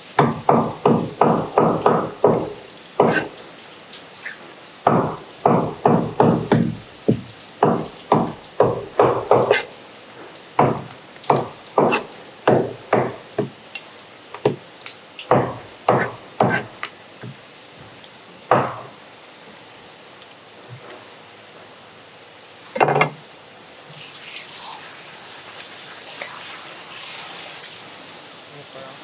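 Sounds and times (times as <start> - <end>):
knife chopping on plastic board: 0.2 - 3.3, 4.9 - 9.7, 10.6 - 13.6, 14.4 - 14.6, 15.3 - 17.4, 18.5 - 18.9.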